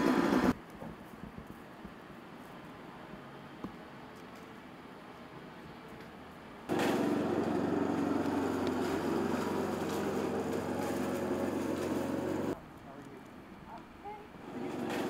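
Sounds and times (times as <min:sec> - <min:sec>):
engine running steadily: 0:06.7 - 0:12.6.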